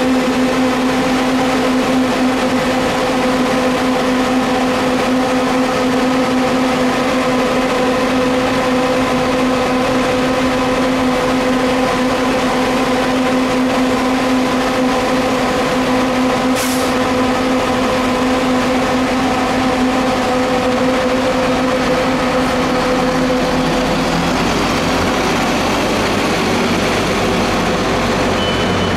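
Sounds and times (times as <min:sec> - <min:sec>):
bus idling drone: 0:00.0 - 0:28.9
bus pulling away rumble: 0:00.0 - 0:28.9
brief air hiss: 0:16.6 - 0:17.0.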